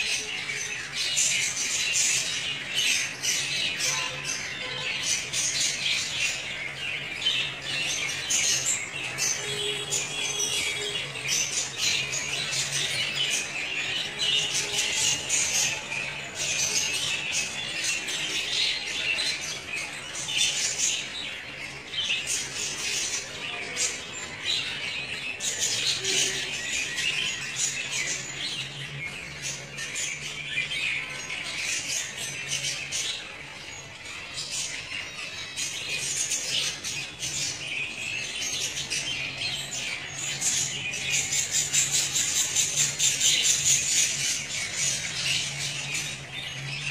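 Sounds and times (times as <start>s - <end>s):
budgerigars chattering and squawking: 0.0s - 46.9s.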